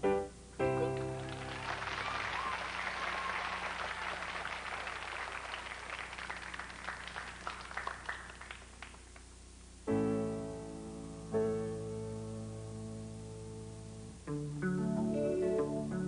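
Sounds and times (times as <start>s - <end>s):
audience applause: 0.8s - 9.2s.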